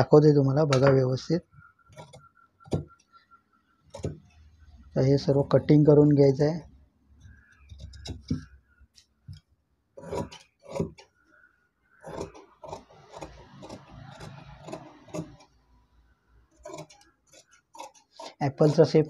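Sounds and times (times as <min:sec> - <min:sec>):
shears cutting cloth: 0:12.1 - 0:15.5.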